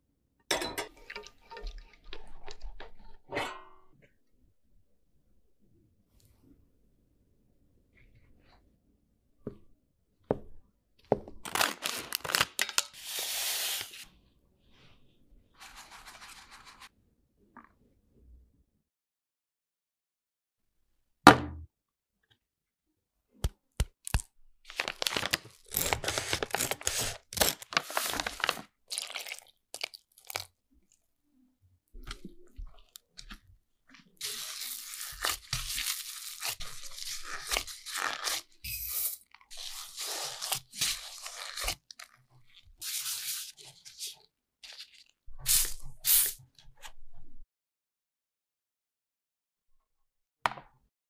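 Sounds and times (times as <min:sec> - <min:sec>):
hand kneading dough in bowl: 0:31.9 - 0:38.6, 0:39.3 - 0:45.2
spray bottle squirts: 0:38.6 - 0:40.2, 0:45.4 - 0:46.4.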